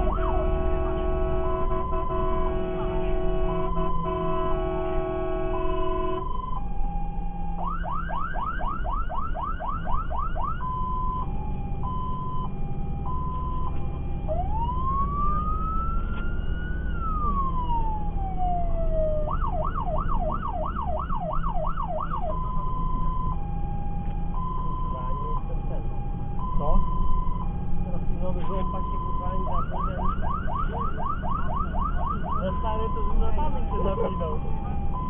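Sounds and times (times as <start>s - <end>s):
fire engine siren: 0.0s - 35.0s.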